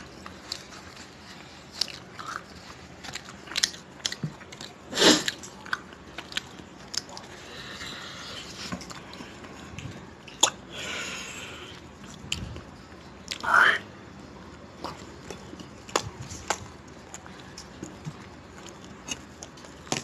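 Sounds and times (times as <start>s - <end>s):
bread tearing rustle: 0.0s - 10.7s
man chewing: 0.0s - 20.0s.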